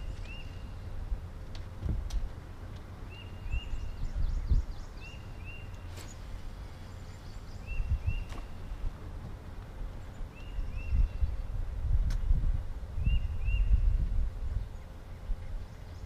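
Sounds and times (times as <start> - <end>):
low rumble with bumps: 0.0 - 4.9.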